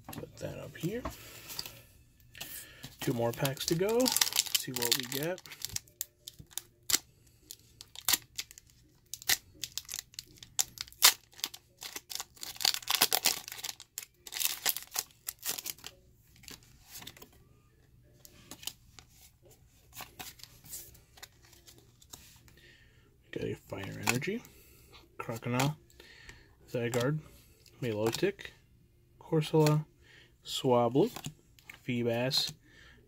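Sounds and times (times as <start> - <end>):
cards clicking and rustling: 2.8 - 7.0
foil wrapper tearing and crinkling: 3.2 - 7.0, 9.2 - 15.9.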